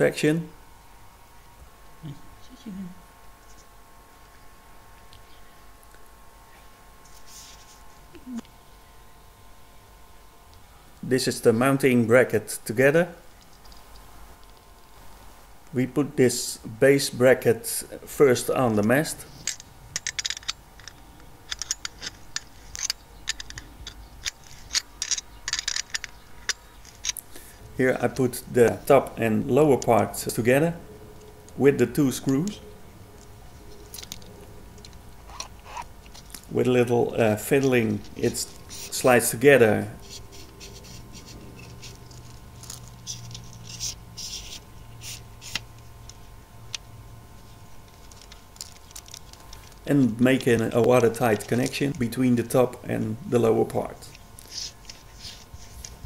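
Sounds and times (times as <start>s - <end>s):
faint low hum: 0.0s - 56.0s
antenna sections scraping: 7.0s - 8.4s, 18.9s - 30.4s, 33.2s - 36.5s, 37.2s - 52.1s, 54.0s - 56.0s
spanner clicking and scraping: 19.4s - 27.2s, 40.0s - 46.9s.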